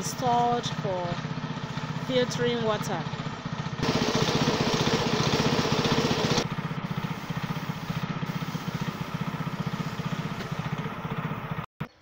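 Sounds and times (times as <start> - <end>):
air compressor engine chugging: 0.0 - 11.7
spray gun air hiss: 3.8 - 10.7.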